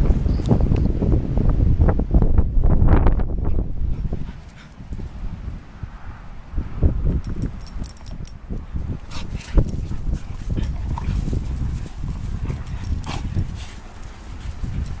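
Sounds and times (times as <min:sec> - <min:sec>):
dogs growling while playing: 0:09.0 - 0:15.0.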